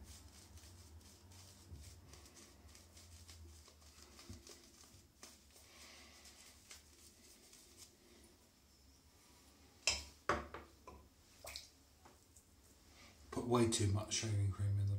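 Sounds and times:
shaving brush swishing: 0.0s - 8.2s.

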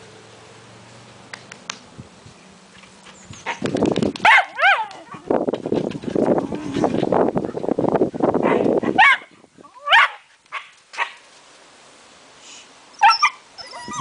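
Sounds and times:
dog yipping: 3.4s - 5.2s, 13.0s - 14.0s.

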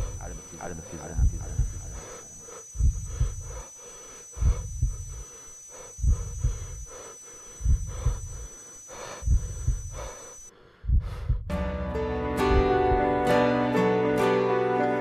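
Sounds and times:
heartbeat thumps: 0.0s - 3.7s, 4.3s - 5.2s, 5.9s - 7.0s, 7.6s - 10.2s, 10.8s - 11.7s, 12.4s - 13.2s
breathing: 1.6s - 11.5s.

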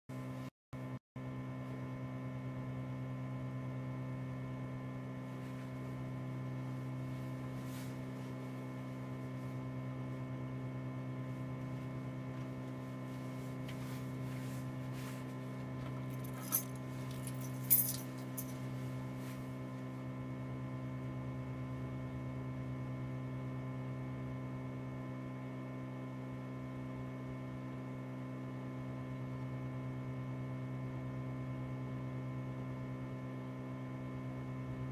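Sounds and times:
electrical mains hum: 0.1s - 34.9s
small rattle: 15.0s - 18.8s.

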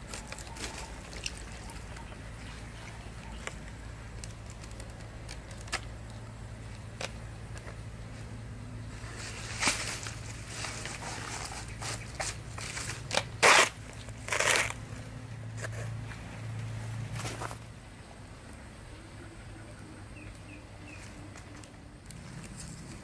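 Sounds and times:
tearing banana leaf sheath: 0.0s - 7.8s, 9.0s - 16.0s
knife cutting banana leaf sheath: 9.0s - 14.9s.

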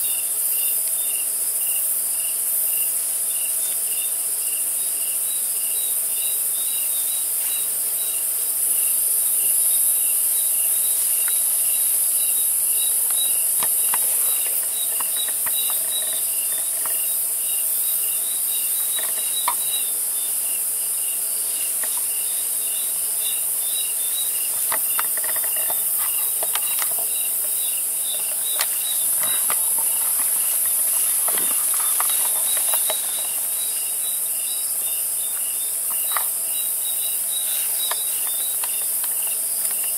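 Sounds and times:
faint insect chirps: 0.0s - 39.9s
soft rustles and clicks: 13.0s - 17.3s, 24.4s - 33.8s.

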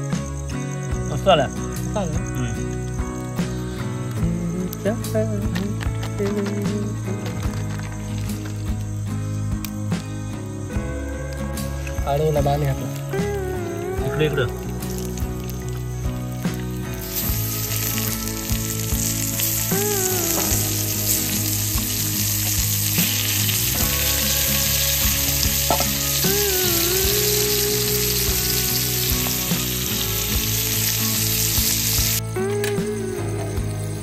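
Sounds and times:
chicken sizzling in fat: 11.6s - 32.6s.

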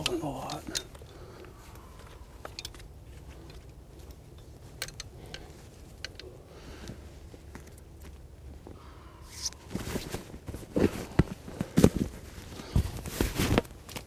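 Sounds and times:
suit fabric rustling: 9.6s - 14.0s.

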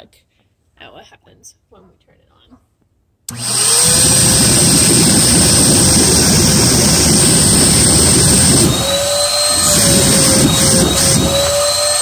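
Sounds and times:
vacuum cleaner motor running: 3.3s - 12.0s.

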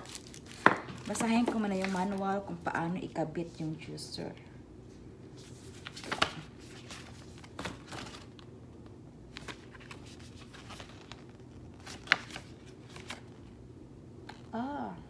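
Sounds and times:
paper pages rustling: 0.0s - 2.4s, 5.4s - 8.5s, 9.3s - 13.5s.

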